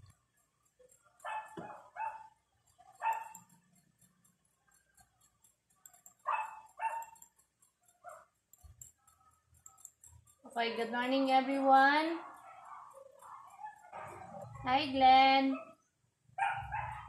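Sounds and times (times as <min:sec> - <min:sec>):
dog barking: 0:01.2 - 0:03.6, 0:06.2 - 0:07.3, 0:08.0 - 0:08.4, 0:12.2 - 0:14.7, 0:15.5 - 0:17.0.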